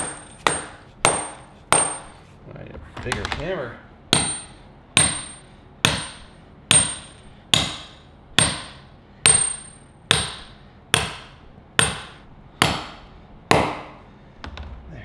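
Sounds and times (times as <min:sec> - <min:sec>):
hammer striking metal anchor: 0:00.0 - 0:02.1, 0:04.1 - 0:14.0.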